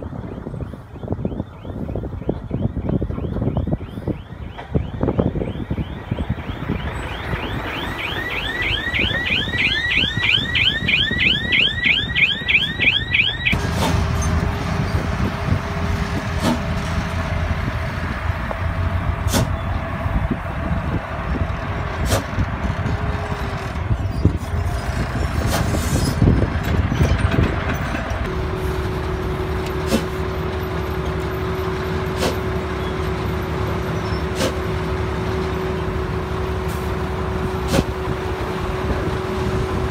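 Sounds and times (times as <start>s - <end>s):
diesel truck engines: 0.0s - 39.9s
warbling warning alarm chirp: 0.2s - 13.6s
steady whine: 1.6s - 13.7s.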